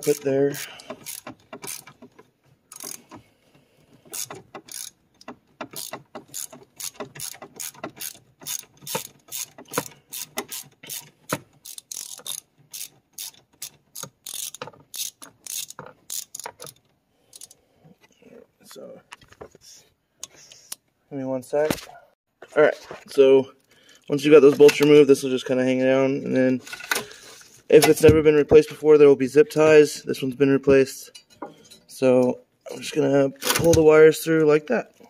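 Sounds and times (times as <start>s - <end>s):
socket ratchet clicking: 0.8s - 2.1s, 2.7s - 3.1s, 4.1s - 17.6s.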